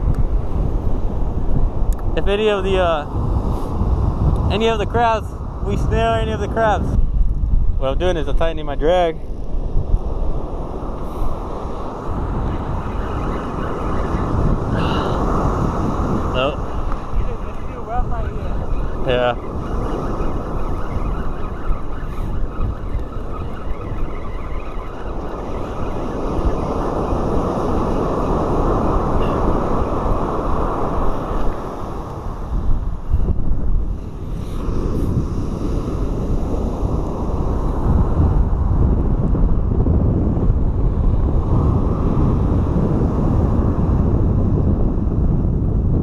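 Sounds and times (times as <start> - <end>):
wind buffeting microphone: 0.0 - 46.0
ocean surf breaking: 9.7 - 33.2.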